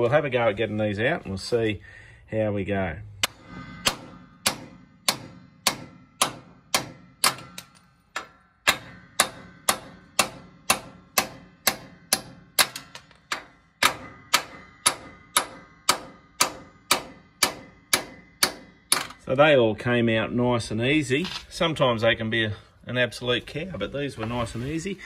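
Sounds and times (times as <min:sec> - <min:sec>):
hammer striking metal studs: 0:03.2 - 0:19.2.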